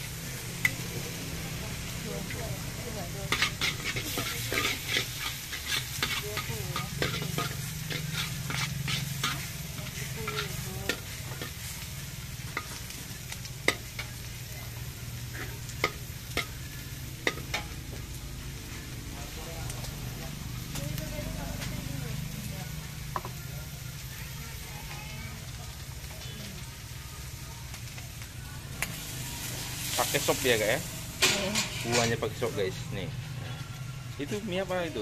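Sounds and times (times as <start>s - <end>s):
food sizzling in a wok: 0.0s - 35.0s
metal spatula scraping a pan: 2.1s - 17.8s, 28.8s - 32.7s.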